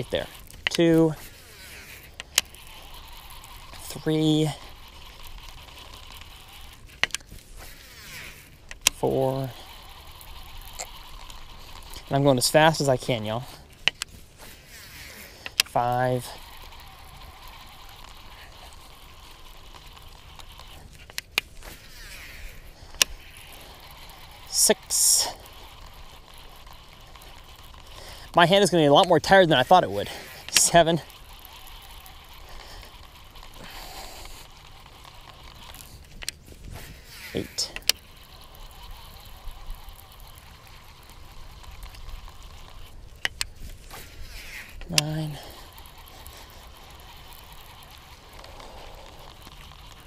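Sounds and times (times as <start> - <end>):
fishing reel clicks: 0.0 - 50.0
low steady hiss: 21.5 - 35.2.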